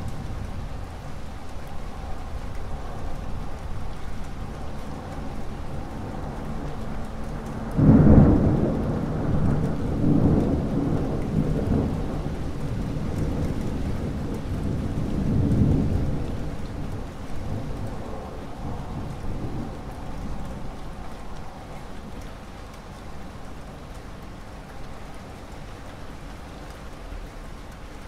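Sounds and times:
steady rain: 0.0s - 28.0s
rolling thunder: 5.7s - 21.5s
loud thunderclap: 7.8s - 16.5s.

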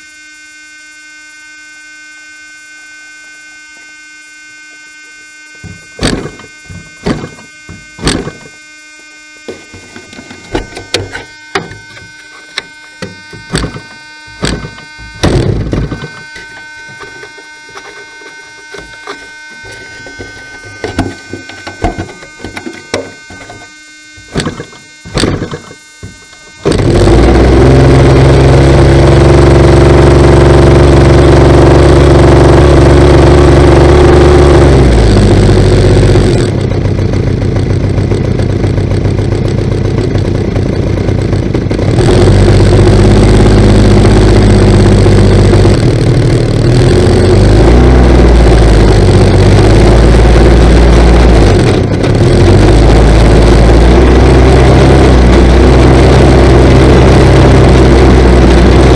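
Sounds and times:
model aircraft engine running: 0.0s - 58.9s.

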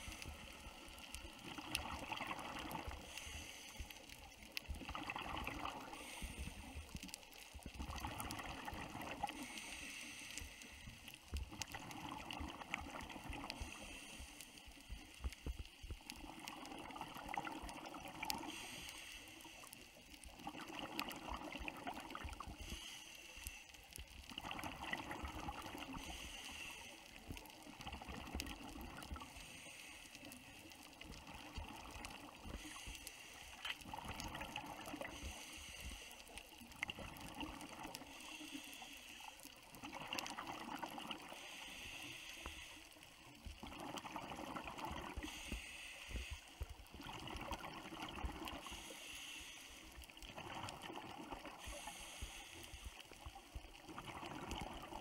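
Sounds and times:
exhaled bubbles underwater: 1.0s - 3.1s, 4.6s - 6.9s, 7.6s - 9.5s, 11.4s - 13.6s, 15.9s - 18.7s, 20.3s - 22.6s, 24.3s - 26.2s, 27.4s - 29.3s, 30.9s - 32.6s, 33.6s - 35.3s, 36.7s - 38.2s, 39.6s - 41.6s, 43.4s - 45.6s, 46.6s - 48.8s, 50.1s - 51.9s, 53.5s - 55.0s
hissing regulator inhale: 2.8s - 4.7s, 5.7s - 7.2s, 9.2s - 11.4s, 13.4s - 15.8s, 17.7s - 20.3s, 22.2s - 24.1s, 25.8s - 27.7s, 29.0s - 31.2s, 32.3s - 33.9s, 34.8s - 36.6s, 37.9s - 40.3s, 41.2s - 43.3s, 45.0s - 46.7s, 48.5s - 50.8s, 51.4s - 53.4s.

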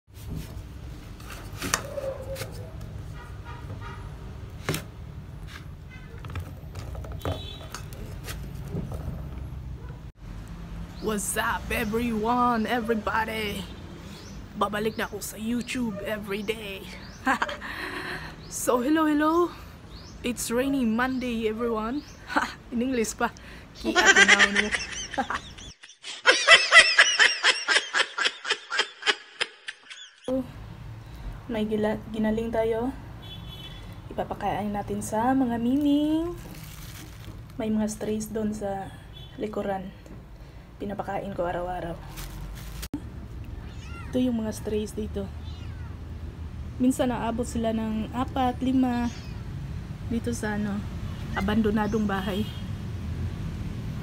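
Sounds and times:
woman laughing and giggling: 17.2s - 18.2s, 23.8s - 30.3s.

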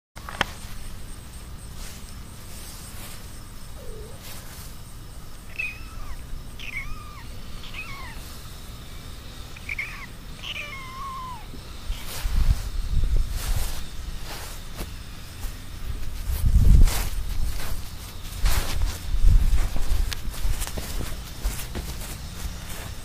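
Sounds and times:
kitten mewing: 3.7s - 4.6s, 5.4s - 8.4s, 9.6s - 12.2s.

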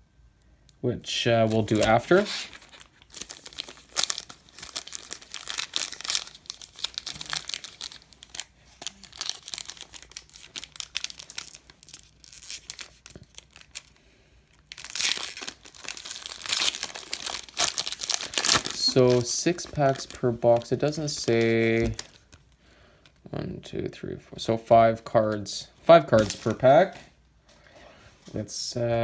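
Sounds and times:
foil wrapper crinkling: 1.4s - 23.2s, 26.1s - 26.9s.

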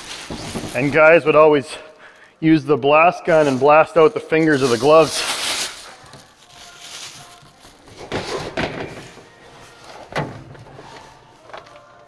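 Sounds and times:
plastic wrap rustling: 0.0s - 2.3s, 2.9s - 12.0s
metal cabinet thunk: 7.9s - 9.3s, 9.9s - 11.1s.

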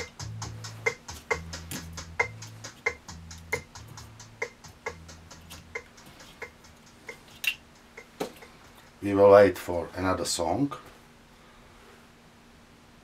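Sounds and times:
low bass line: 0.0s - 5.9s
ticking beat: 0.0s - 9.4s.

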